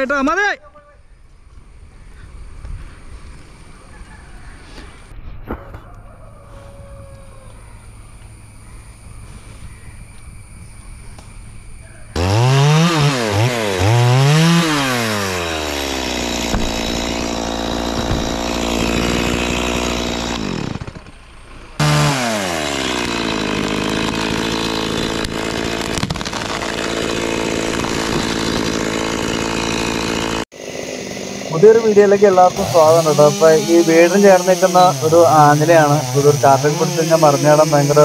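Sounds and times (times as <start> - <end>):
chainsaw revving and running: 12.2 - 21.1, 21.8 - 38.0.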